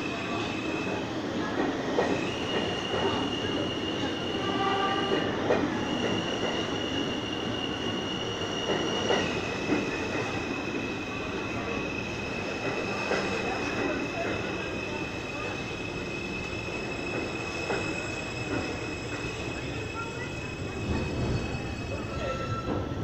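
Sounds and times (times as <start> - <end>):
subway wheels squealing: 0.0 - 23.0
train rumble: 7.7 - 23.0.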